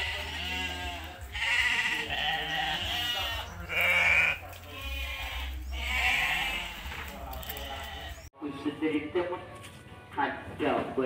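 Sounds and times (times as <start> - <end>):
sheep bleating: 0.0 - 8.3.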